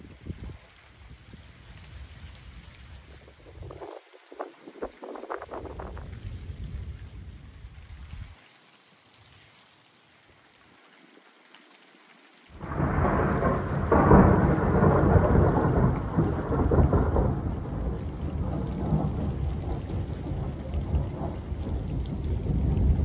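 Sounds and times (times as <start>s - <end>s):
loud thunderclap: 12.6s - 23.0s
thunder rumbling: 12.6s - 23.0s.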